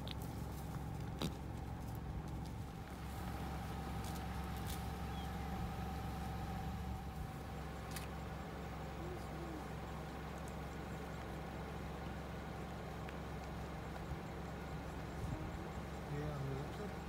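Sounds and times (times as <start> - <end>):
car engine idling: 0.0 - 17.0
light ticks: 10.0 - 14.5.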